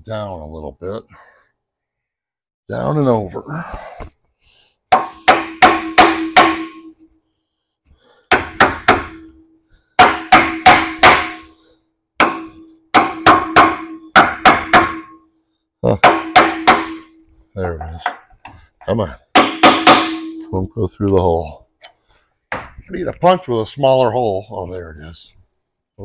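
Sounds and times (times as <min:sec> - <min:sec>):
hammer striking steel punch: 0:04.9 - 0:06.9, 0:08.3 - 0:09.4, 0:10.0 - 0:11.5, 0:12.2 - 0:15.2, 0:16.0 - 0:17.2, 0:19.3 - 0:20.5.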